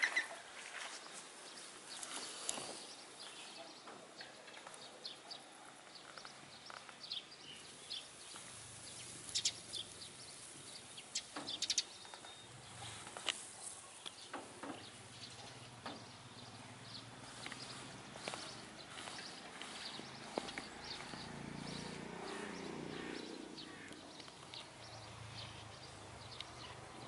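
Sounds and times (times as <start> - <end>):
footsteps rustling through hay: 0.5 - 3.4, 17.0 - 23.1
faint bird chirps: 2.0 - 26.7.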